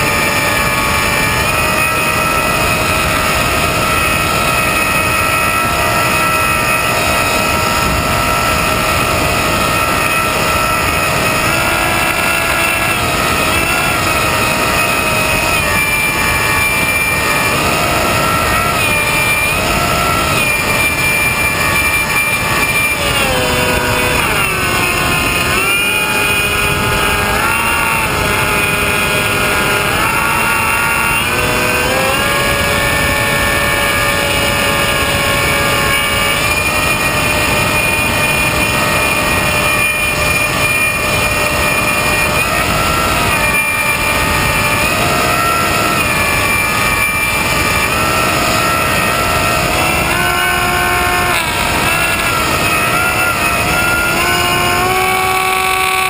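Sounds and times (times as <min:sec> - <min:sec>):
model airplane motor whine: 0:00.0 - 0:56.0.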